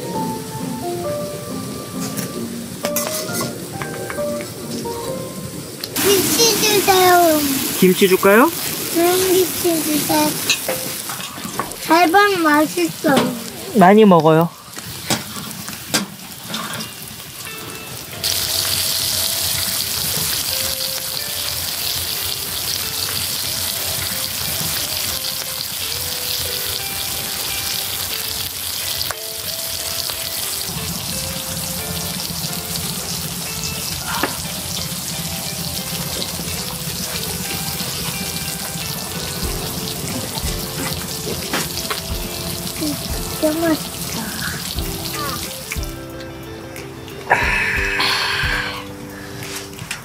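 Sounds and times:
background music: 0.0 - 14.7, 16.6 - 50.0
meat sizzling on grill pan: 5.9 - 14.1, 14.7 - 46.2.

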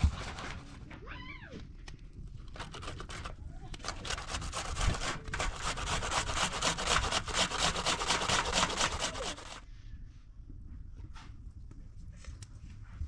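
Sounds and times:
onion grating on metal grater: 2.5 - 9.6.

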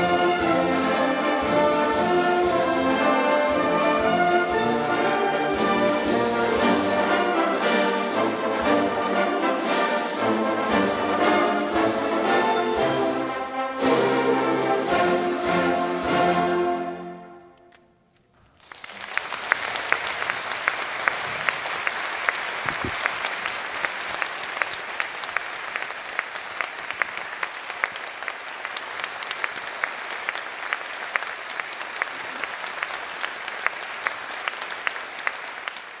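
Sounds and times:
audience applause: 18.3 - 36.0.

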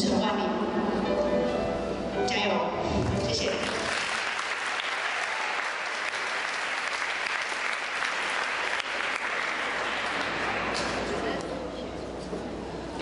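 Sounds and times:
audience applauding: 3.6 - 11.3.

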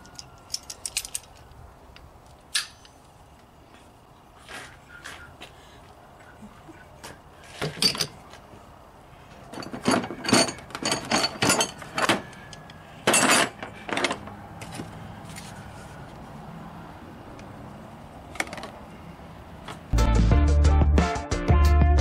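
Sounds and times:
metal hand tools clinking: 9.5 - 14.2.

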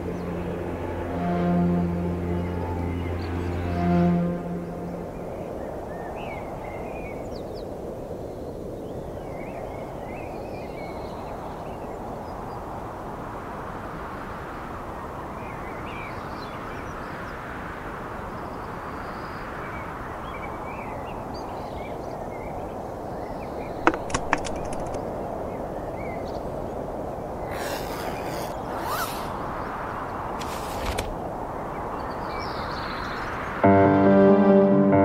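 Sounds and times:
outdoor background rush: 0.0 - 33.7
bird chirps: 27.4 - 30.8
backpack fabric rustle: 30.4 - 31.2.

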